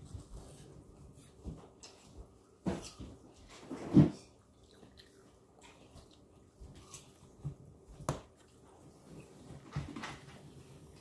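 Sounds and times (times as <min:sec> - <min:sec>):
wet chewing of watermelon: 0:04.3 - 0:09.3.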